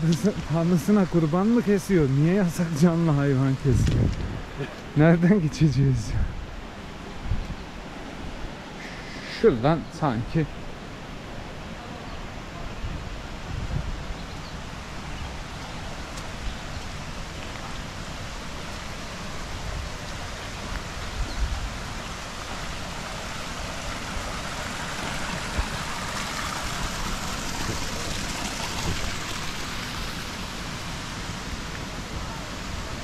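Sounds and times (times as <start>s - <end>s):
stream running over stones: 0.0s - 33.0s.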